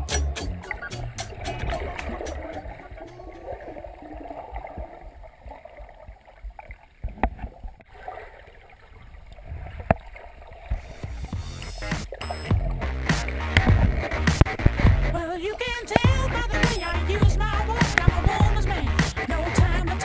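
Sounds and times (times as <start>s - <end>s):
sharp clicks: 0.1s - 3.5s
muffled underwater water wash: 0.8s - 16.5s.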